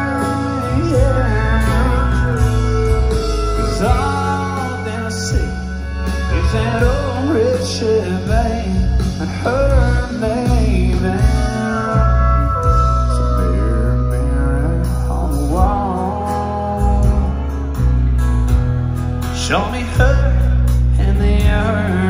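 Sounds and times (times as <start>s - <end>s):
person singing: 0.0s - 18.2s, 19.4s - 22.0s
live country band playing: 0.0s - 22.0s.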